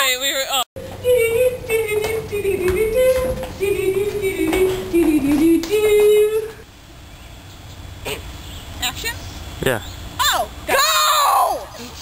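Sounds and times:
high voice singing wordlessly: 0.8 - 6.6
footsteps on hard floor: 2.0 - 6.6.

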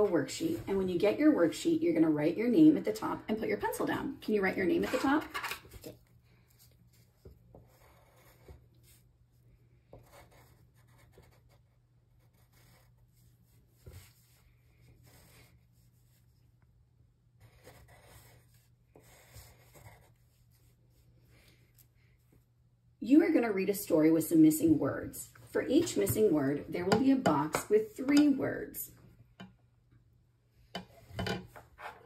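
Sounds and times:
pencil scratching on paper: 6.5 - 9.1, 9.9 - 16.5, 17.4 - 21.1.

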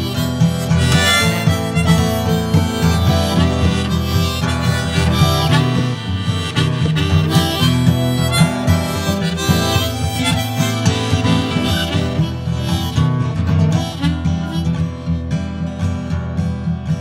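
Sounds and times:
harmonica melody: 0.0 - 16.2
acoustic guitar strumming: 0.0 - 17.0.

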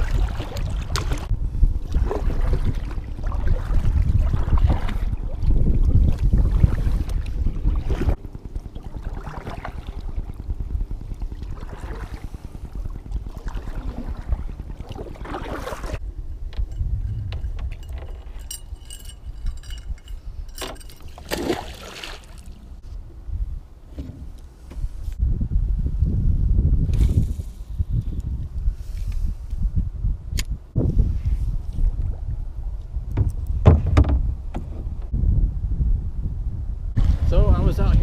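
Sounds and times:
paddle splashing in water: 0.0 - 1.3, 1.9 - 7.2, 8.9 - 10.1, 11.5 - 12.3, 13.3 - 16.0, 21.1 - 22.6
wind buffeting microphone: 0.0 - 21.7, 22.4 - 38.0
knocks: 33.2 - 34.7.

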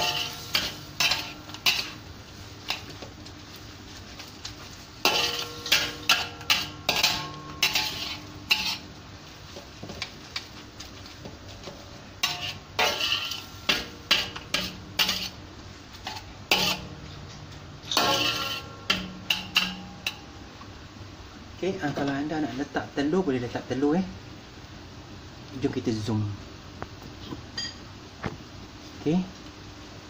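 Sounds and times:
wok ringing: 0.0 - 3.1, 4.9 - 10.0, 11.2 - 20.9, 27.6 - 27.9
spatula scraping a wok: 0.0 - 20.3.

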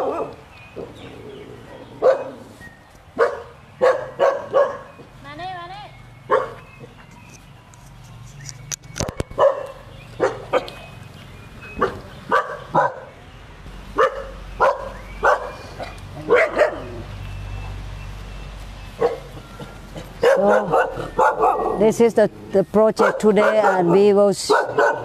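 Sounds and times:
dogs barking: 0.0 - 2.5, 3.2 - 5.1, 6.3 - 7.0, 9.0 - 11.0, 11.7 - 13.2, 13.9 - 17.2, 19.0 - 22.0, 22.9 - 25.0.

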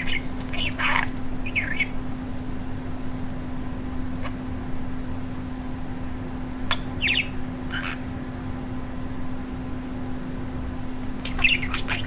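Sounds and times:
budgerigar chirping: 0.0 - 2.0, 7.0 - 8.0, 11.2 - 12.0
steady low hum: 0.0 - 12.0.

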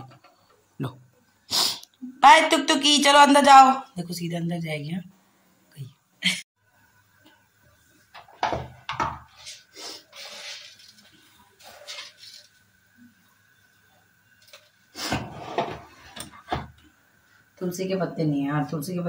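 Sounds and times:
pots and utensils clattering: 15.0 - 16.8.

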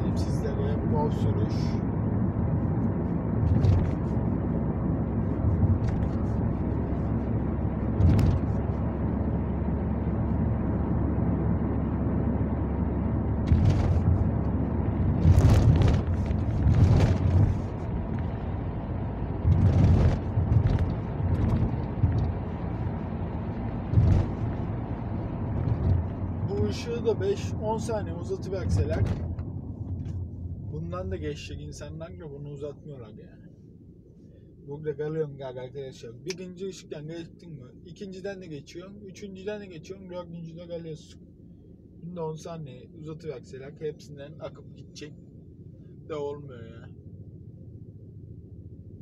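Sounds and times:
car engine and road rumble: 0.0 - 49.0
knocks and thumps: 3.4 - 4.0, 8.0 - 8.5, 13.4 - 14.2, 15.2 - 18.2, 19.4 - 22.4, 23.9 - 24.5, 25.6 - 26.1.

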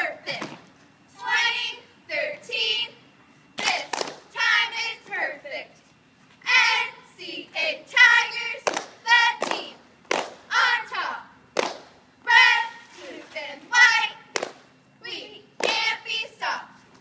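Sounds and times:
girls chanting a cheer: 1.1 - 3.0, 3.6 - 5.7, 6.4 - 9.8, 10.5 - 11.3, 12.2 - 16.8
sharp clap: 3.6 - 4.3, 8.6 - 10.5, 11.6 - 12.0, 14.3 - 14.7.

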